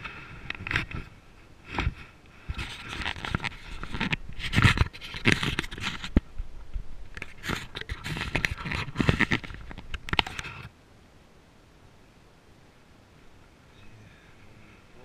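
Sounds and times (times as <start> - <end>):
camera handling rustling: 1.7 - 6.2, 7.1 - 10.7.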